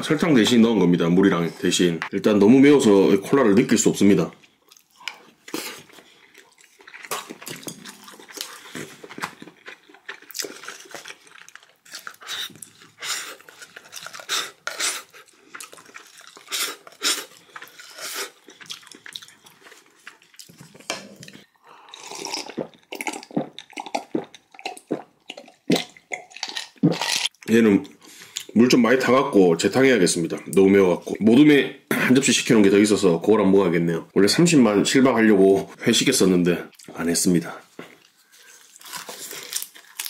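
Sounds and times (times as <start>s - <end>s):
chewing: 4.4s - 27.4s.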